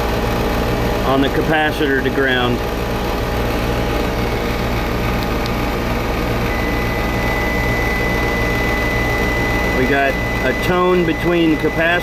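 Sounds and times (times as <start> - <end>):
low mechanical hum: 0.0 - 12.0
high-pitched continuity beep: 6.4 - 12.0.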